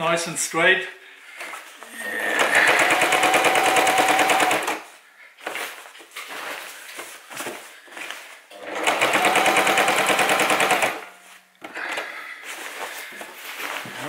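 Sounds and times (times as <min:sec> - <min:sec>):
sewing machine stitching: 0:01.9 - 0:04.9, 0:08.5 - 0:11.1.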